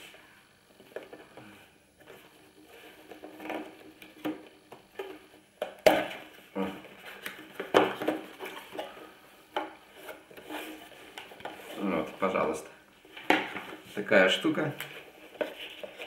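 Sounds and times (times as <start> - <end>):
cardboard rubbing and scraping: 9.9 - 12.2, 15.0 - 16.0.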